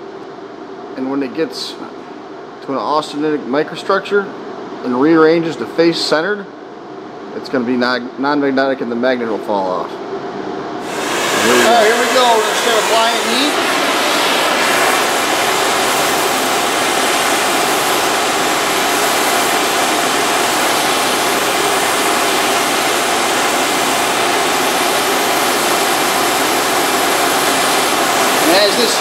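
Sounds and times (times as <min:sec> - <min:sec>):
gas torch flame hissing: 0:10.8 - 0:29.0.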